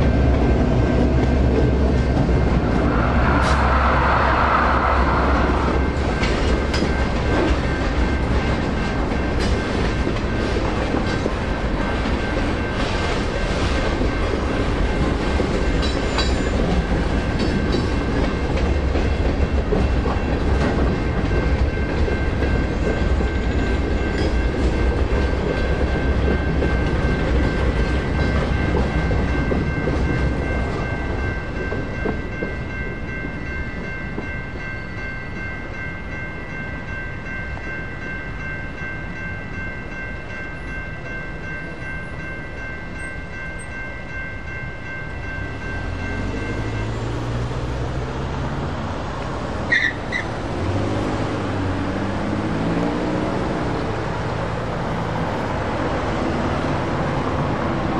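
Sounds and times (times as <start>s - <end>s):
crossing bells ringing: 0.0s - 57.9s.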